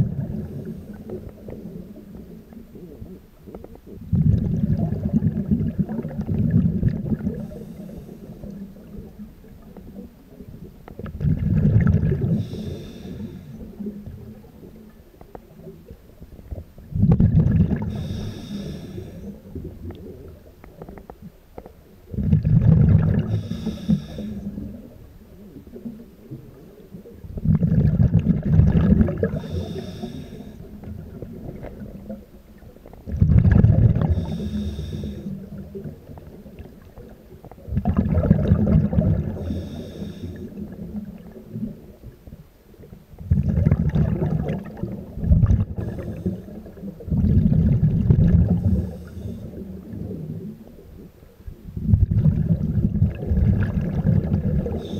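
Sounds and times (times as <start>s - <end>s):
exhaled bubbles rumbling underwater: 0.0s - 54.9s
regulator hiss: 12.4s - 13.6s, 17.9s - 19.5s, 23.3s - 24.6s, 29.4s - 30.7s, 34.2s - 35.4s, 39.4s - 40.6s.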